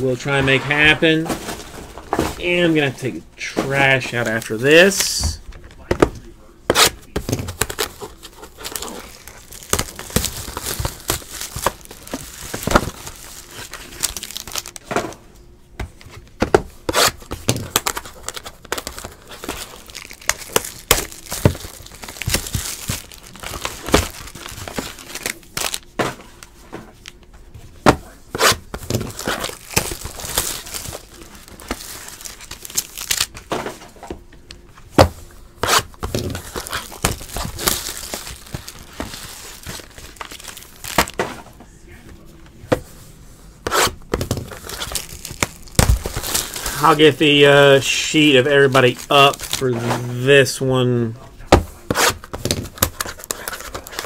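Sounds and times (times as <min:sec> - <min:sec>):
cards and cardboard handled: 0:03.6 - 0:15.2, 0:15.8 - 0:34.2, 0:35.0 - 0:41.6, 0:43.6 - 0:50.4, 0:51.5 - 0:54.0
foil wrapper crinkling and tearing: 0:07.5 - 0:14.9, 0:16.9 - 0:26.0, 0:28.8 - 0:33.4, 0:35.7 - 0:41.2, 0:44.3 - 0:50.6, 0:52.1 - 0:54.0.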